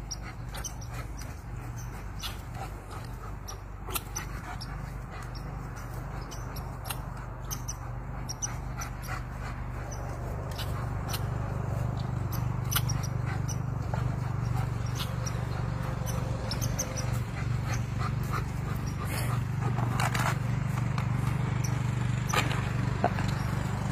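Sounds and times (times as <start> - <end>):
dog making playful sounds: 0.0 - 20.4
steady low hum: 0.0 - 23.9
sharp clicks: 0.5 - 17.8.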